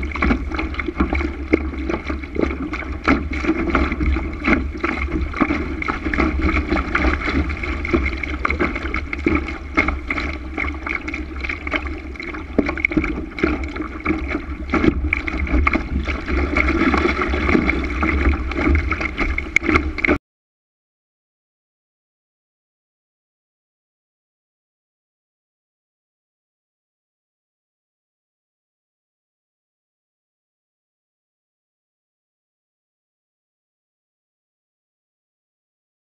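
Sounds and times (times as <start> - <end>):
water rushing along a hull: 0.0 - 20.2.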